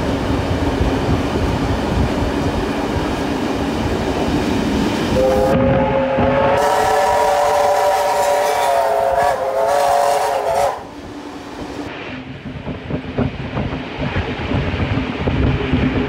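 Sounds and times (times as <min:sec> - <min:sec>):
train running: 0:00.0 - 0:16.0
steam locomotive whistle: 0:05.2 - 0:11.0.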